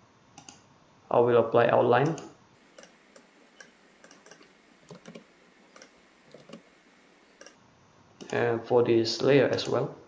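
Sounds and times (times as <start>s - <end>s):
computer mouse clicks: 0.4s - 0.6s, 2.1s - 7.6s.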